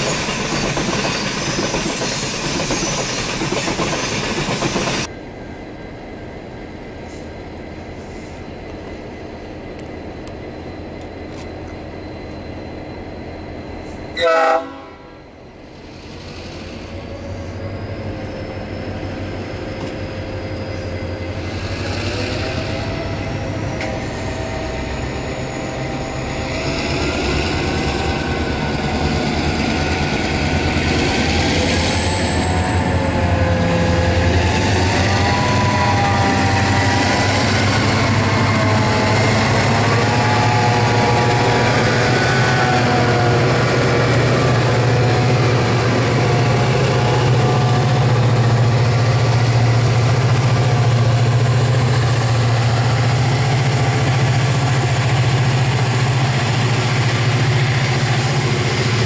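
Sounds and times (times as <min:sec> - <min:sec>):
diesel locomotive engine rumble: 0:00.0 - 0:59.0
train wheel noise: 0:00.0 - 0:59.0
train horn blast: 0:14.1 - 0:15.2.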